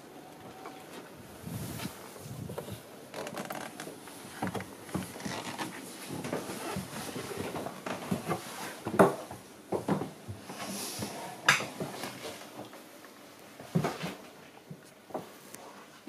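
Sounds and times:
footsteps on wooden steps: 0:01.8 - 0:10.4
wooden knocks and creaks: 0:02.4 - 0:10.2.

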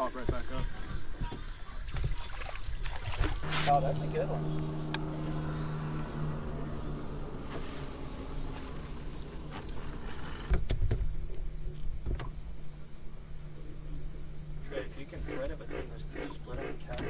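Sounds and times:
night insects droning: 0:00.0 - 0:17.0
low hum: 0:03.4 - 0:17.0.

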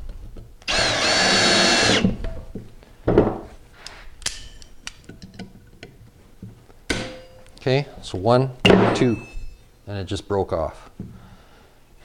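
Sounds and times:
cordless drill driving screw: 0:00.7 - 0:02.1.

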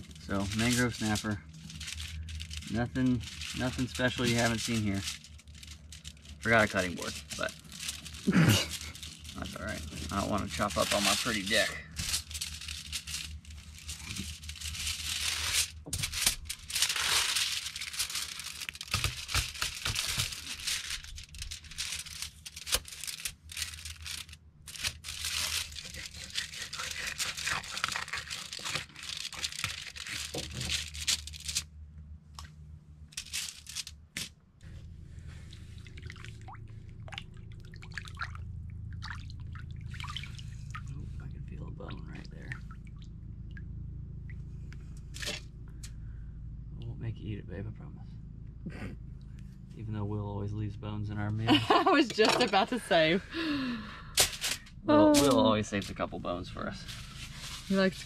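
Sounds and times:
foil crinkling and rustling: 0:00.0 - 0:31.7, 0:33.1 - 0:34.3, 0:51.5 - 0:53.6, 0:54.2 - 0:58.0
water dripping and splashing: 0:35.5 - 0:41.0.

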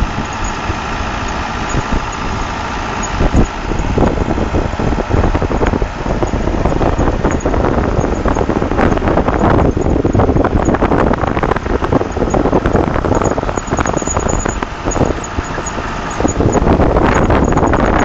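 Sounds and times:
harvester engine running: 0:00.0 - 0:18.0.

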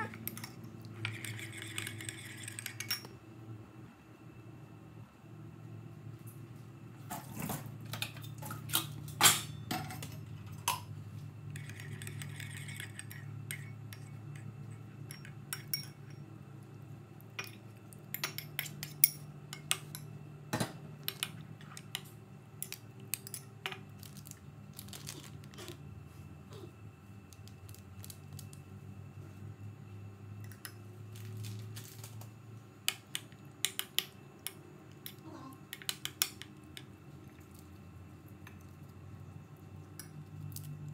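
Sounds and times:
spoon clinking on ceramic bowl: 0:11.6 - 0:16.3.

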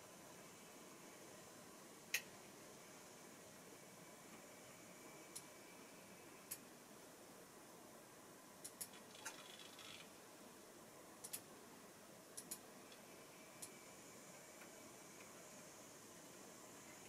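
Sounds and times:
faint sharp clicks: 0:12.4 - 0:13.0.

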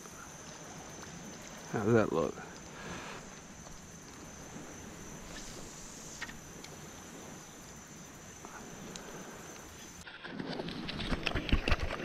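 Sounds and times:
faint tick: 0:08.9 - 0:09.7.

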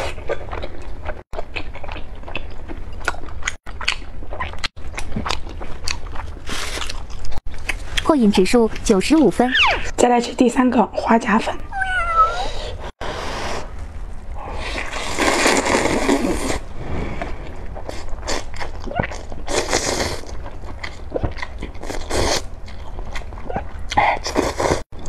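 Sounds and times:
chewing: 0:00.0 - 0:08.1, 0:17.2 - 0:25.0
person slurping noodles: 0:14.4 - 0:20.3, 0:24.3 - 0:24.8.

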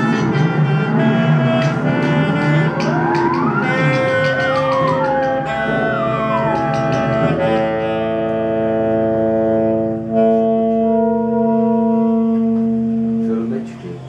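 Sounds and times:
theremin gliding pitch: 0:00.0 - 0:08.2
saxophone: 0:00.0 - 0:14.0.

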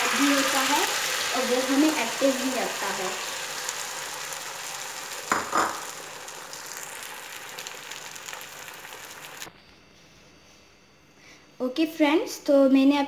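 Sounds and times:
egg sizzling on a griddle: 0:00.0 - 0:09.5.

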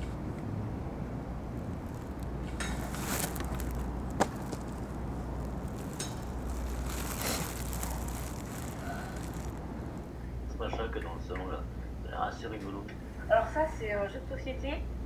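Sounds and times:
short rustling: 0:01.6 - 0:10.1.

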